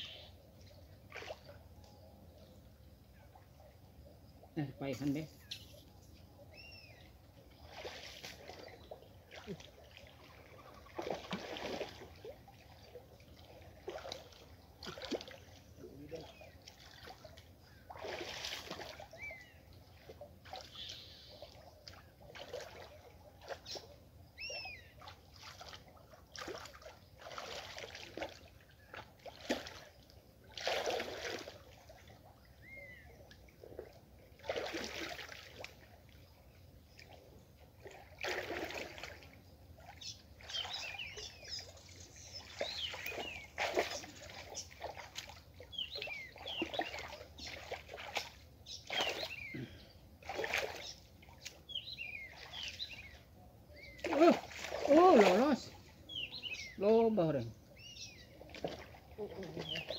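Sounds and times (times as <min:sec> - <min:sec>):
birds chirping: 0:00.0 - 0:11.4, 0:12.2 - 0:25.4, 0:32.3 - 0:34.5, 0:39.0 - 0:59.9
muddy water splashing: 0:00.0 - 0:59.9.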